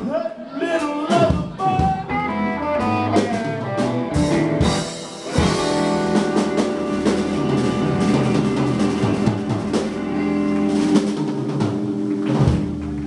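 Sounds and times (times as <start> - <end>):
drum rolls and cymbal hits: 2.9 - 13.0
electric guitars ringing chord: 3.7 - 13.0.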